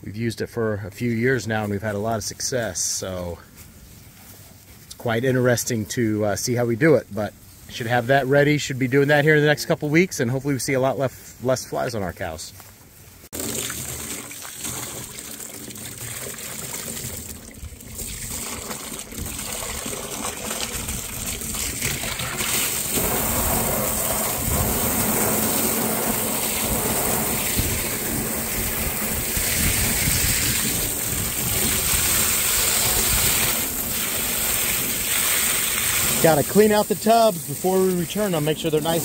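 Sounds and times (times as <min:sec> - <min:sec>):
water spraying into plastic tub: 0:13.3 - 0:39.0.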